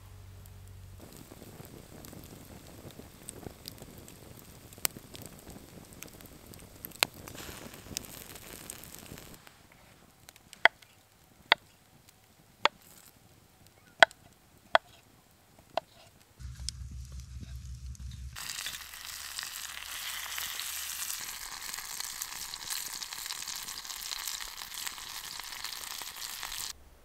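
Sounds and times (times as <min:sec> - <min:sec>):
campfire crackling: 0:00.1 - 0:26.8.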